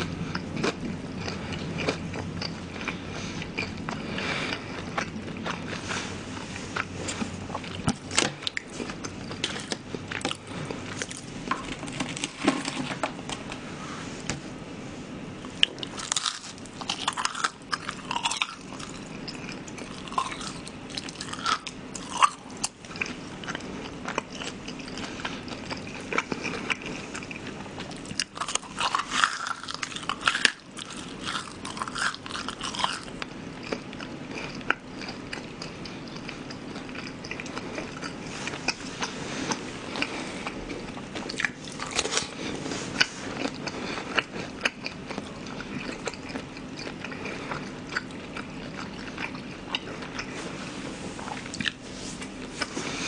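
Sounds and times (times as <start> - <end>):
crunchy chewing: 0.0 - 13.6, 15.5 - 53.0.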